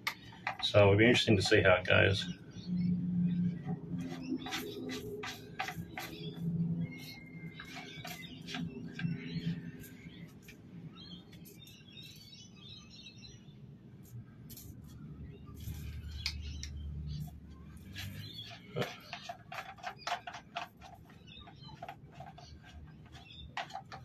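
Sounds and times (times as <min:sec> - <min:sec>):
plastic rattles: 0:00.0 - 0:01.8, 0:03.6 - 0:10.6, 0:17.2 - 0:24.0.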